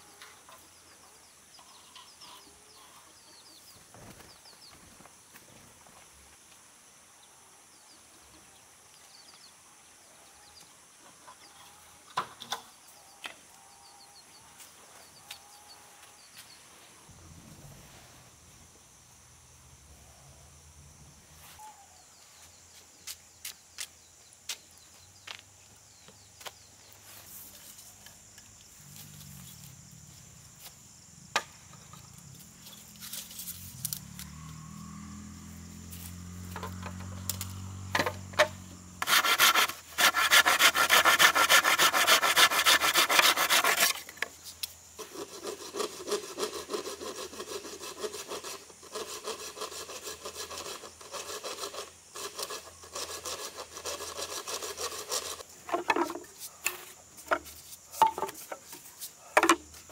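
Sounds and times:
hand saw cutting bamboo: 38.4s - 44.2s, 45.0s - 55.4s.

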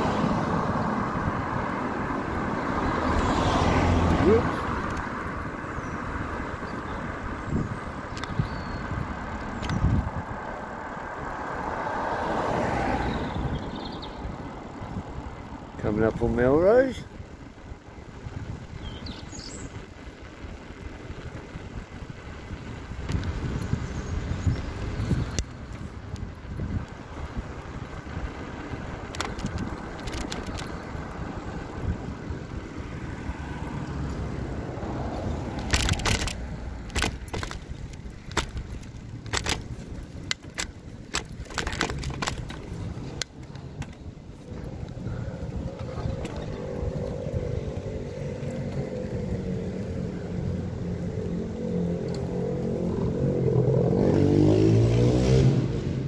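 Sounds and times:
road noise: 0.0s - 56.0s
wind rumbling on microphone: 0.0s - 56.0s
light rattling clicks: 4.8s - 5.4s, 8.0s - 10.6s, 24.4s - 31.8s, 35.0s - 50.4s.

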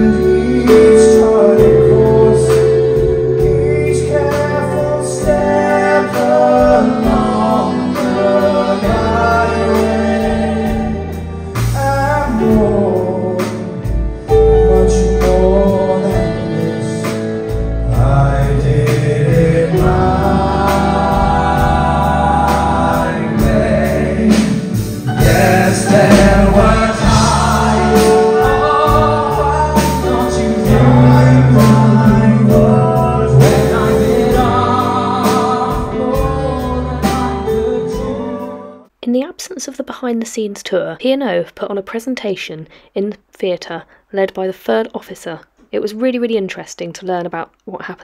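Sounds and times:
sustained bass notes: 0.0s - 38.8s
vocal group singing: 0.0s - 38.9s
band playing: 0.0s - 39.0s.

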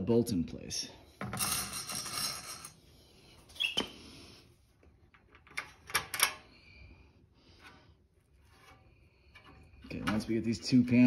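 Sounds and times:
metal scraping and rustling: 7.6s - 11.0s.

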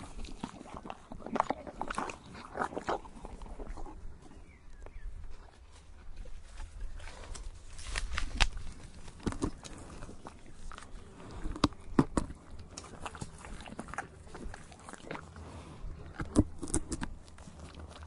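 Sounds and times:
horse chewing tree bark: 0.0s - 18.0s.

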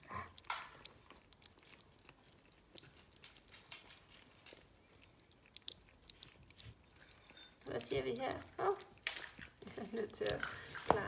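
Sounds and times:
puppies lapping wet smacking: 0.0s - 11.0s.

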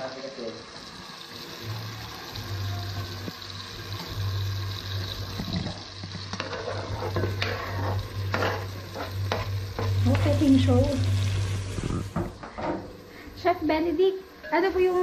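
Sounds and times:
tomatoes sizzling in a pot: 0.0s - 15.0s
spatula scraping onions into pot: 6.3s - 10.2s.

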